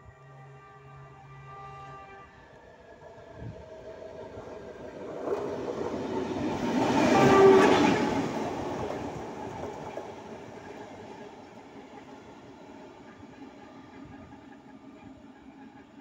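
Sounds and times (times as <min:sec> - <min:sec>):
locomotive horn blast: 0:00.0 - 0:02.6, 0:06.9 - 0:08.2
diesel locomotive passing: 0:00.0 - 0:16.0.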